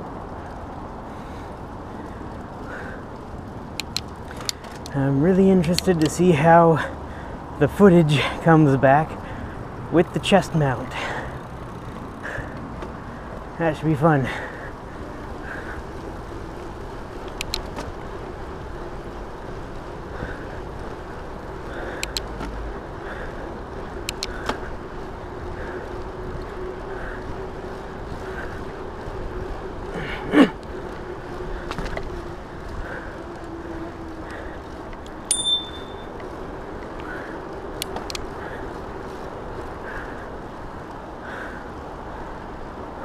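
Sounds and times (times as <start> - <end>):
electric bike riding hum: 0.0 - 43.0
light clicks: 3.7 - 5.0, 5.6 - 6.2, 17.2 - 17.9, 22.0 - 22.6, 24.0 - 24.6, 37.7 - 38.3
bicycle bell ring: 35.3 - 36.2.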